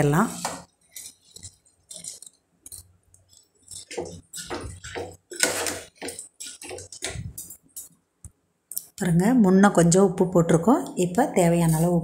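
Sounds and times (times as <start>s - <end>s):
spoon scraping bowl: 0.0s - 8.0s, 11.4s - 12.0s.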